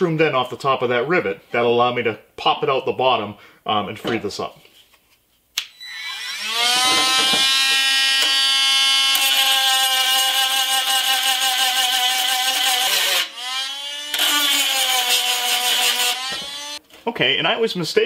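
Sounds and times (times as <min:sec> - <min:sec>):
rotary tool whining: 0:05.7 - 0:16.8.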